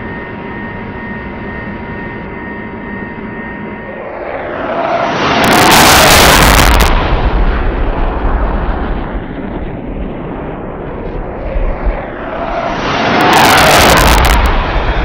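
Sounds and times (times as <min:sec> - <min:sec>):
aircraft roar: 0:00.0 - 0:15.0
low rumble: 0:01.7 - 0:15.0
loud explosive blast: 0:04.4 - 0:11.3, 0:12.0 - 0:15.0.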